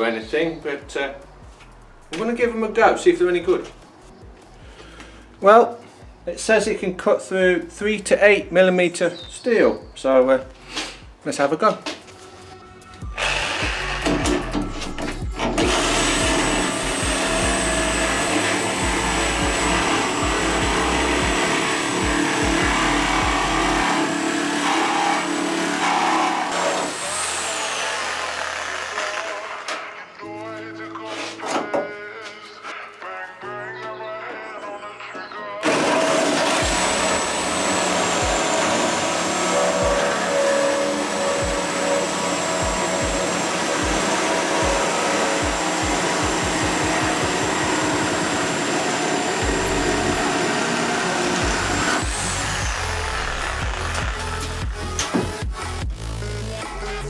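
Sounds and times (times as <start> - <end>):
reciprocating saw cutting steel: 13.2 - 29.7, 35.6 - 55.0.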